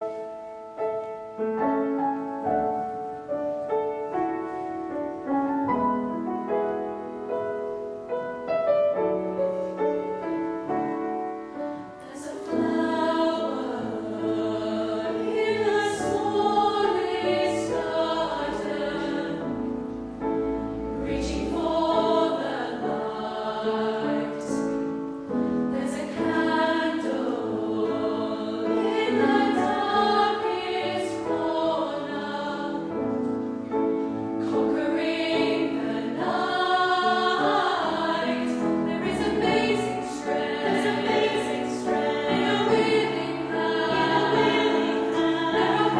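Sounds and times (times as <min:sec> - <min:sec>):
piano accompaniment: 0:00.0 - 0:45.9
youth choir singing: 0:10.8 - 0:33.5, 0:34.4 - 0:45.9.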